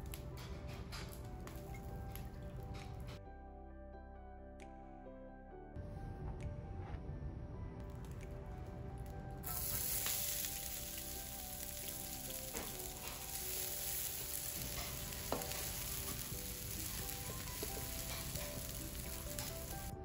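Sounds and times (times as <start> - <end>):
onions sizzling in oil: 9.4 - 19.9
wooden spatula stirring: 12.3 - 19.9.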